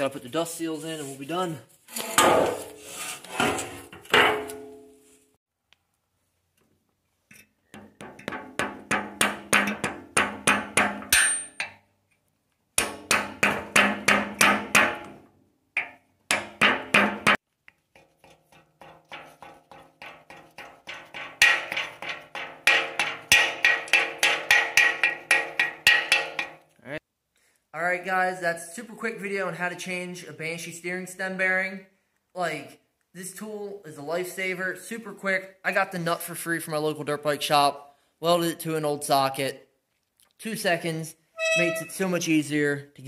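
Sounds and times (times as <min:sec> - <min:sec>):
hammer tapping metal: 0:07.7 - 0:11.8, 0:18.5 - 0:26.6.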